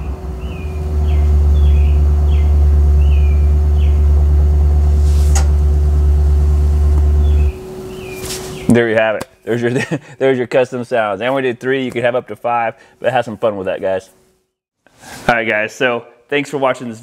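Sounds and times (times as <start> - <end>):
recorded car engine rumble from speaker: 0.0 - 8.1.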